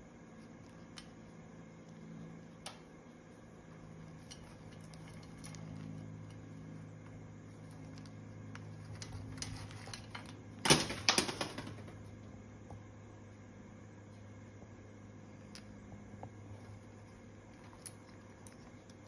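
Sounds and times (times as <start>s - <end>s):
low steady hum: 0.0s - 19.0s
parrot beak clicking and crunching: 0.3s - 10.4s.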